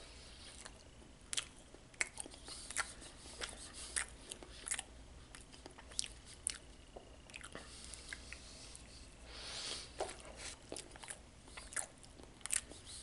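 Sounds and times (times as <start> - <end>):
mouth chewing wet smacks: 0.4 - 9.0, 9.7 - 13.0.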